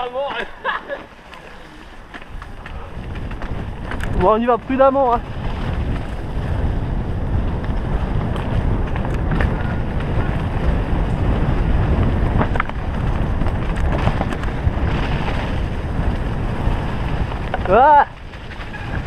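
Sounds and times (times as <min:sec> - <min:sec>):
bike tyres rolling over leaves: 0:00.0 - 0:19.0
wind buffeting microphone: 0:00.0 - 0:19.0.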